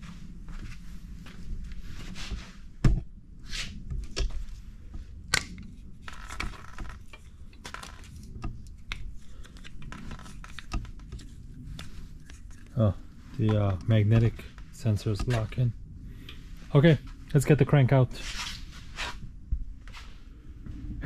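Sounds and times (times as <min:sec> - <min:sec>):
clicks and rubbing: 0:05.4 - 0:12.8.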